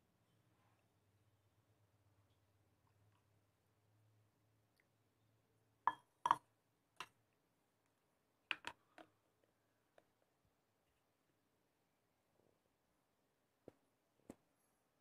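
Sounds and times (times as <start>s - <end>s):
vessels clinking on stone counter: 5.9s - 7.2s.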